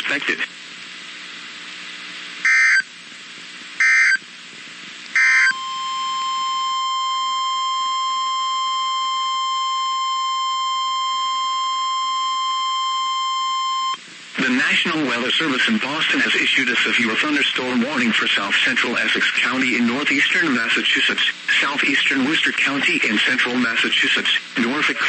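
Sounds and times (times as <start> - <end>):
steady warning alarm tone: 2.5 - 2.9, 3.8 - 4.2, 5.2 - 14.0.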